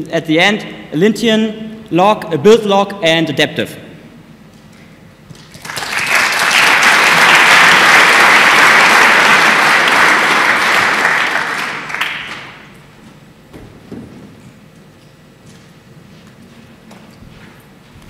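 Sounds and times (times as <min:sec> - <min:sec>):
audience applauding: 0:05.3 - 0:12.7.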